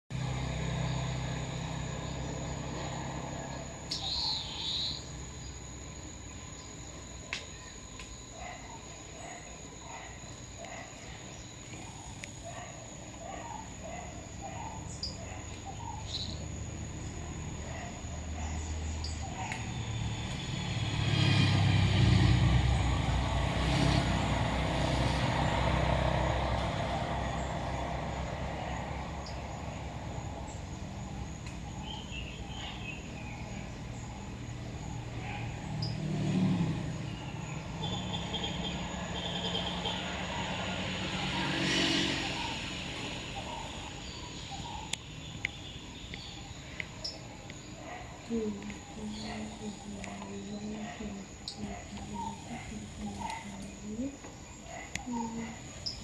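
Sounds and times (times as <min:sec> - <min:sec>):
motor vehicle passing: 0:00.1 - 0:06.1, 0:09.2 - 0:56.0
small bird chirps: 0:03.5 - 0:05.6, 0:14.5 - 0:16.5, 0:54.9 - 0:56.0.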